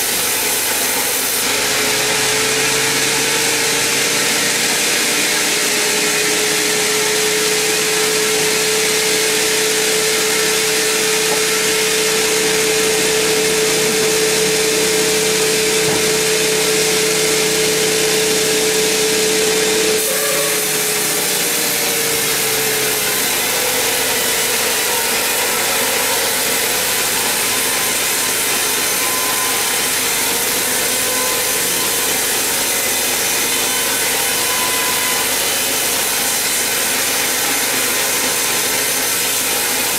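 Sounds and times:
band saw cutting through log: 0.0s - 39.9s
machine hum: 7.6s - 29.2s.

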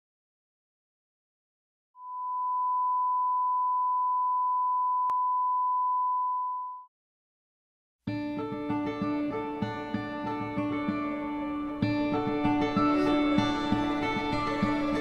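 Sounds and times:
pure test tone: 2.0s - 6.8s
guitar music: 8.1s - 15.0s.

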